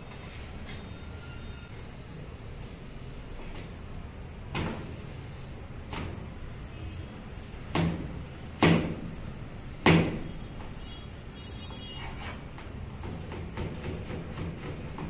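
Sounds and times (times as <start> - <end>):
knife chopping on plastic board: 13.0 - 15.0.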